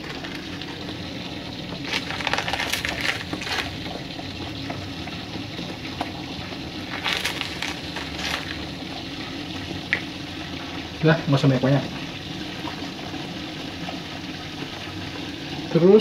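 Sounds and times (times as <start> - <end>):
scraping and crackling in a wok: 0.0 - 10.0.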